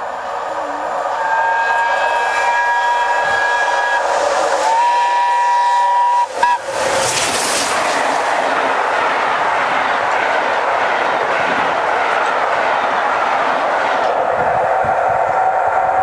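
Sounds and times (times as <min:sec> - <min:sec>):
rising rush of passing train: 0:00.0 - 0:16.0
steam locomotive approaching: 0:00.0 - 0:16.0
steam whistle blasts: 0:01.1 - 0:06.8.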